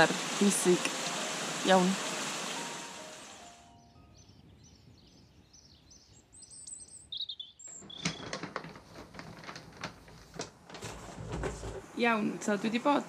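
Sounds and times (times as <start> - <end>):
small birds singing: 0.7 - 8.5
paper map crackling and rustling: 7.7 - 11.9.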